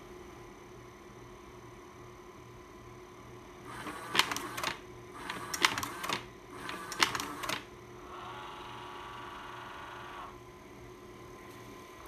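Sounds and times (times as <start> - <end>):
cooling fan hum: 0.0 - 12.0
slide projector mechanism clicking: 3.8 - 7.6.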